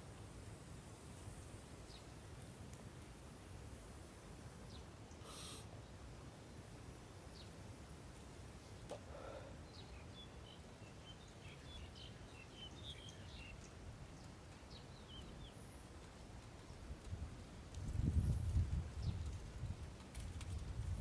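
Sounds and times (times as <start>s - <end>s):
small birds chirping: 4.6s - 7.6s, 8.2s - 15.8s.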